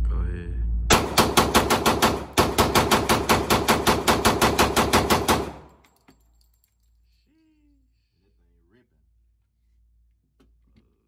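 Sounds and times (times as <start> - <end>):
pistol shots: 0.9 - 5.8.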